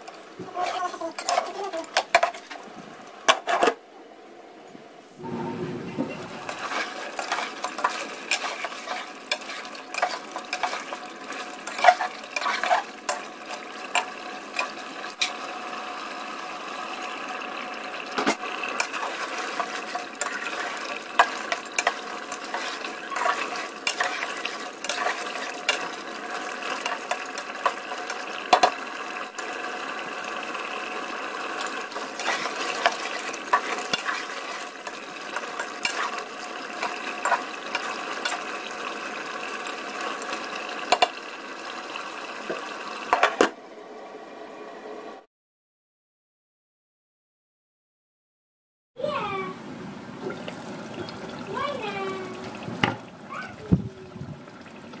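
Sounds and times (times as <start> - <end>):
gravy sizzling: 0.0 - 3.8, 5.2 - 45.1, 49.0 - 55.0
metal spatula scraping a pot: 0.6 - 2.6, 6.1 - 15.4, 18.8 - 26.0, 31.6 - 38.4.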